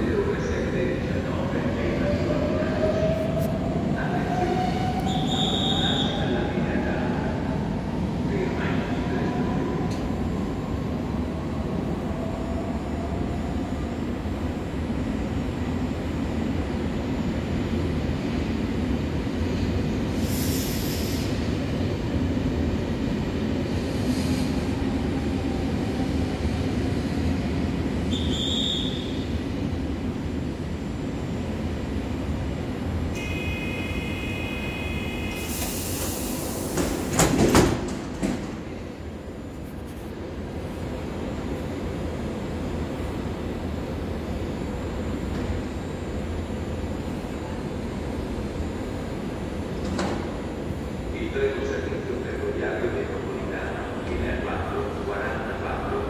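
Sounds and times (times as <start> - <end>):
train doors closing with air burst: 19.6 - 21.7, 34.6 - 38.9, 49.7 - 50.5
short high whistle: 28.1 - 29.1.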